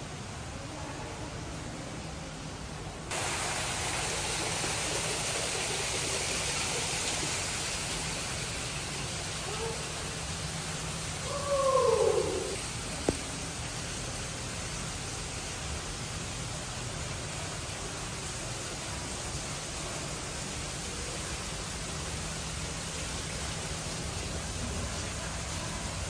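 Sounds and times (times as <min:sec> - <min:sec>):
short falling call: 0:11.2 - 0:12.6.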